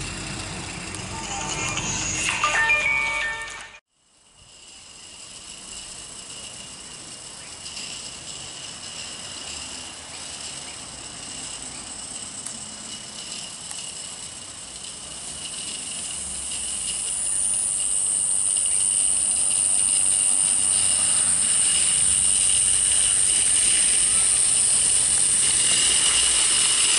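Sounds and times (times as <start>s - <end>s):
background music: 1.0s - 3.8s
faint hiss: 3.9s - 26.9s
insects chirring: 4.0s - 26.9s.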